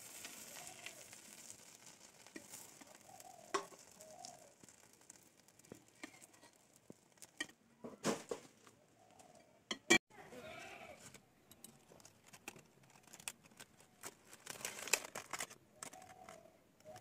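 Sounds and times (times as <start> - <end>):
faint sizzling in a pan: 0.0 - 7.6
metal spatula clicking and scraping: 5.6 - 6.6.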